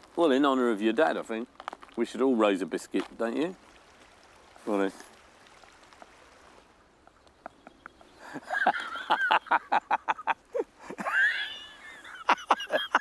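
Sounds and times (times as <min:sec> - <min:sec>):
man laughing hard: 0:08.2 - 0:13.0.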